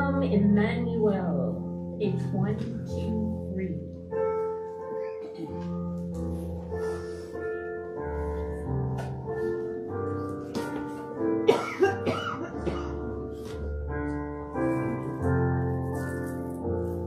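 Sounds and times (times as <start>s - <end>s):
slow keyboard music chords: 0.0s - 17.0s
person coughing: 11.5s - 13.3s.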